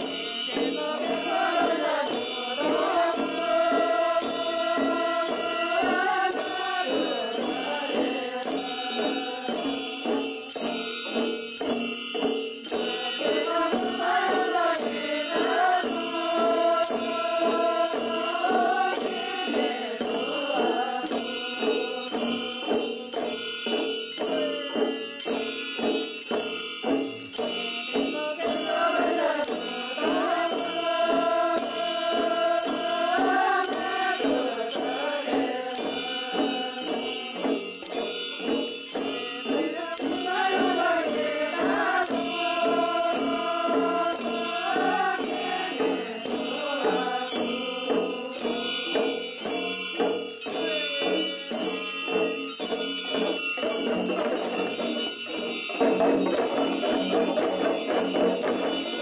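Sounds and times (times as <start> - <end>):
women chanting in unison: 0.0 - 9.8, 12.8 - 22.8, 24.2 - 25.2, 27.6 - 37.5, 39.0 - 49.8
hand drums beating: 0.0 - 59.0
handbells ringing: 0.0 - 59.0.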